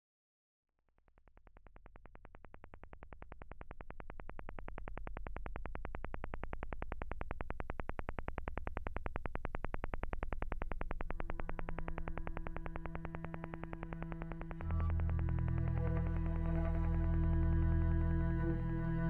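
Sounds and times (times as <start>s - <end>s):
fast radio signal tapping: 6.4s - 17.2s
low steady drone: 10.8s - 19.0s.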